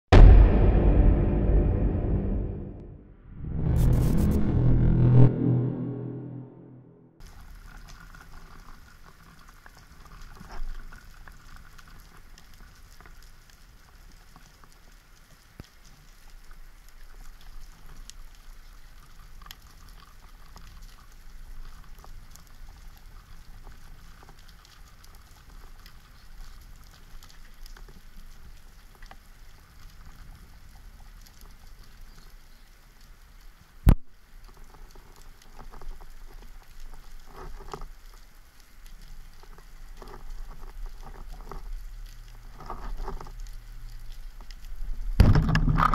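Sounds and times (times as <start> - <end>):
low underwater rumble: 0.1 - 7.2
underwater crackle of clicks: 7.2 - 45.9.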